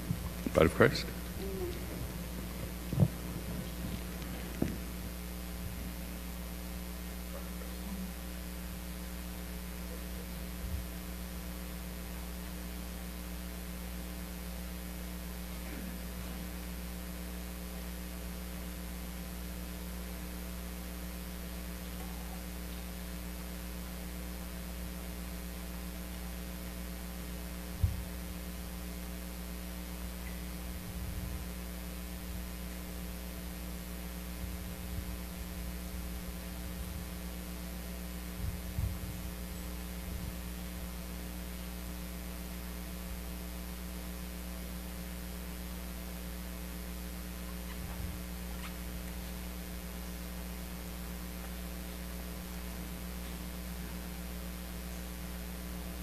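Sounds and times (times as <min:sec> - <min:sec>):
soft low thumps: 0:00.0 - 0:06.3, 0:38.3 - 0:39.4
electrical mains hum: 0:00.0 - 0:56.0.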